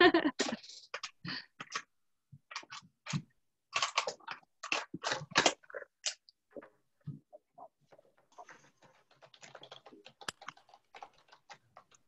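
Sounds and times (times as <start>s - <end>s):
clicks and taps: 8.4s - 12.0s.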